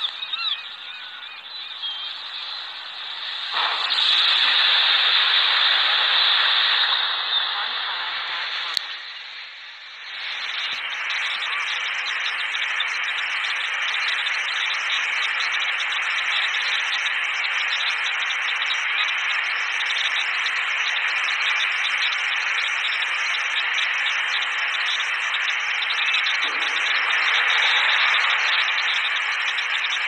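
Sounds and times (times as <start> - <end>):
steady static-like hiss: 0.0 - 13.8.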